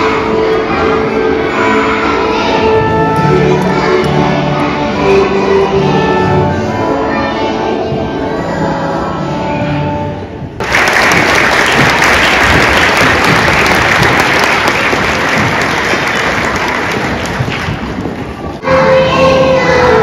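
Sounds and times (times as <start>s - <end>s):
music with held notes: 0.0s - 10.7s, 18.6s - 20.0s
audience applauding: 10.6s - 18.3s.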